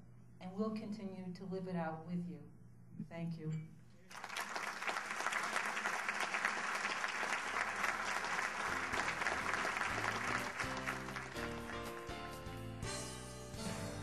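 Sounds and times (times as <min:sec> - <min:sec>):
audience applauding: 0:04.1 - 0:12.8
instrumental music: 0:08.8 - 0:14.0.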